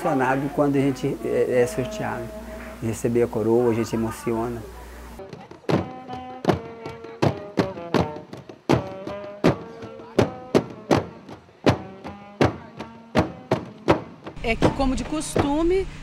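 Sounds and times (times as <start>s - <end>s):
drum band playing: 5.2s - 15.7s.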